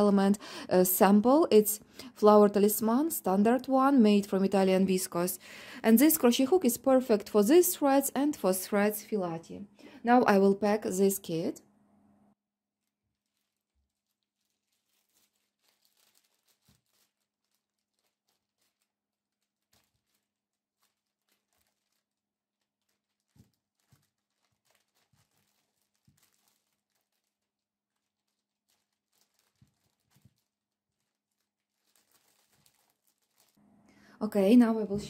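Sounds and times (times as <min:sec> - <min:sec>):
plastic bag crinkling: 0:12.8 - 0:33.6.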